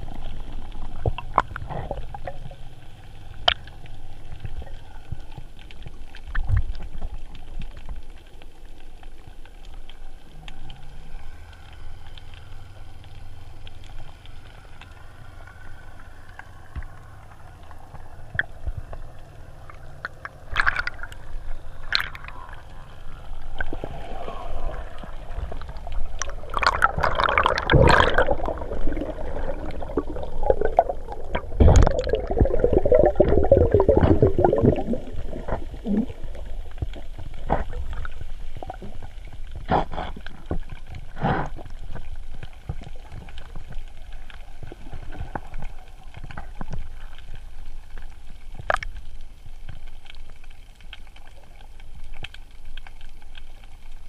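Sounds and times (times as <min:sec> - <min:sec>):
bubbles gurgling: 0:00.0 - 0:04.8, 0:18.2 - 0:39.7
water swirling underwater: 0:00.0 - 0:54.0.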